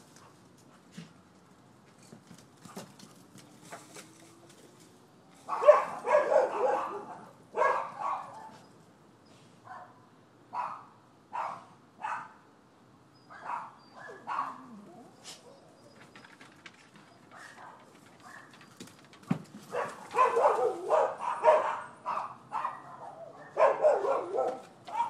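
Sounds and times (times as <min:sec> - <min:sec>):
dogs barking: 0:05.4 - 0:08.6, 0:10.6 - 0:12.4, 0:13.3 - 0:15.7, 0:19.6 - 0:25.0.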